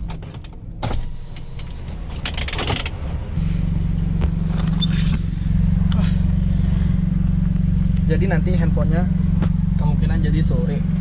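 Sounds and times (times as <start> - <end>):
thin high squeak: 0.9 - 2.6
car engine idling: 2.2 - 11.0.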